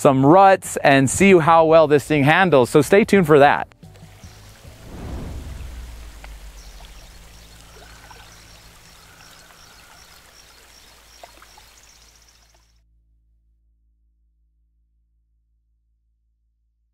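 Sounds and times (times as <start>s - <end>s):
creek water over rocks: 3.8s - 12.7s
faint high chirps: 5.5s - 12.7s.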